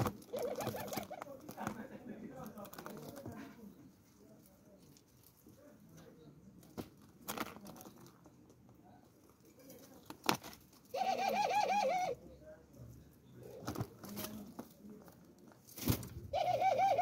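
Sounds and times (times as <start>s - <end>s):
dove calling: 0.0s - 1.8s, 10.9s - 12.4s, 16.2s - 17.0s.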